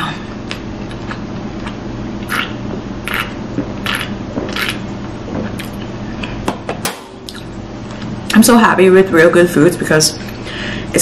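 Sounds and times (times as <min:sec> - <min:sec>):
person gulping a drink: 0:01.6 - 0:04.8.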